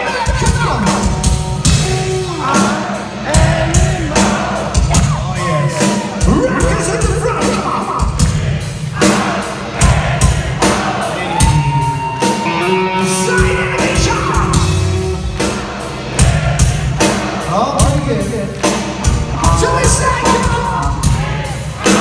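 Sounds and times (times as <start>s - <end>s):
drums beating: 0.0s - 22.0s
rock band playing live: 0.0s - 22.0s
electric guitar: 11.4s - 15.4s.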